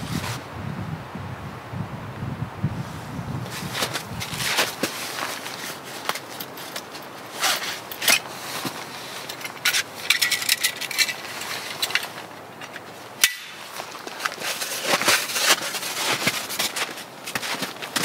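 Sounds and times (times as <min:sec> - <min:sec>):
footsteps crunching in snow: 0:02.8 - 0:10.0, 0:11.2 - 0:18.0
clothing rustling: 0:03.4 - 0:18.0
trekking poles clinking: 0:03.5 - 0:18.0.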